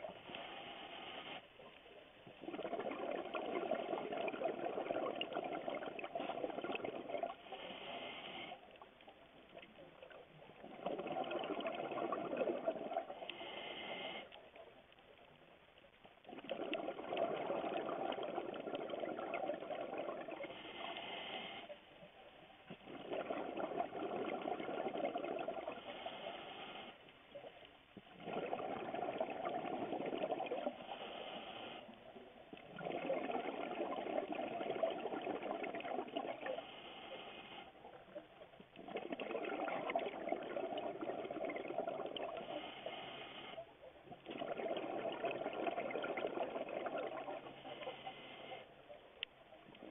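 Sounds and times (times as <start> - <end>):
exhaled bubbles rushing: 2.3 - 7.5, 9.6 - 13.3, 16.2 - 20.6, 22.7 - 25.9, 28.0 - 30.9, 32.6 - 36.7, 38.0 - 42.7, 44.1 - 47.9
diver breathing through regulator: 13.2 - 14.4, 20.4 - 21.8, 25.8 - 27.0, 30.6 - 32.0, 42.3 - 43.6, 47.4 - 48.7.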